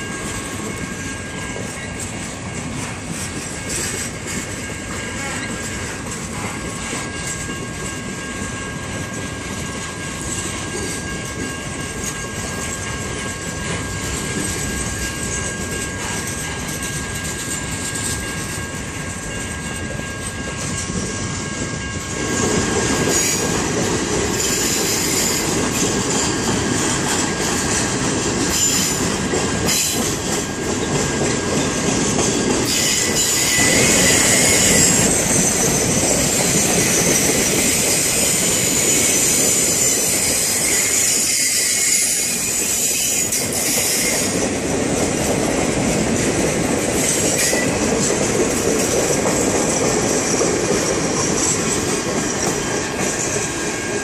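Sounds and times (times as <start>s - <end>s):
freight train wheels rumbling on rails: 0.0s - 54.0s
high wheel squeals: 21.8s - 23.6s, 24.3s - 26.4s, 32.6s - 44.4s.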